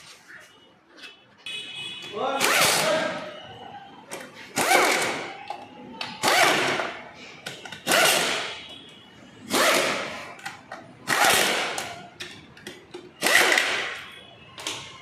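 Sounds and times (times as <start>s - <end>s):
air wrench bursts: 2.4s - 3.0s, 6.2s - 8.5s, 13.2s - 14.0s.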